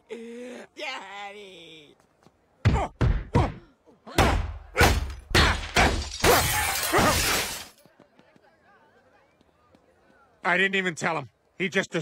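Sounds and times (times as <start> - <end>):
glass window shattering: 4.9 - 7.7.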